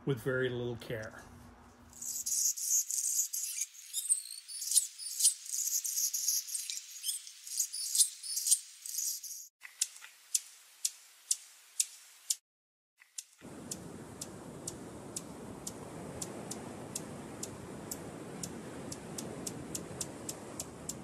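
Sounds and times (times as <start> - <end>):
hummingbird chittering: 2.0 - 9.5
sharp chip calls: 2.0 - 10.4.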